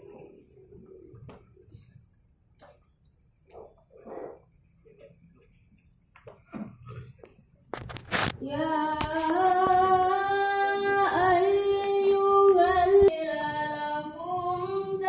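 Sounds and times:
woman chanting recitation: 8.4s - 15.0s.

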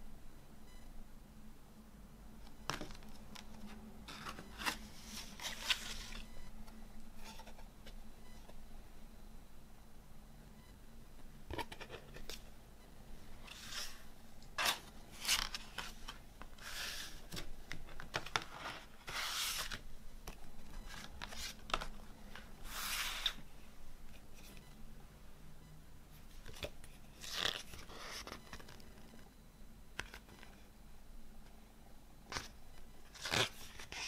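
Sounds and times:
paper scraping slides: 16.6s - 17.4s, 18.6s - 19.8s, 22.6s - 23.4s.

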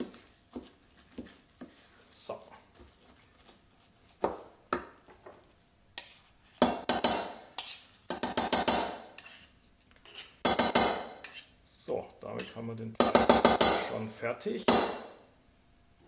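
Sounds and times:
knife scraping wooden spatula: 0.0s - 11.6s, 12.2s - 12.8s
knife scraping metal bowl: 6.0s - 11.5s, 12.4s - 12.7s.

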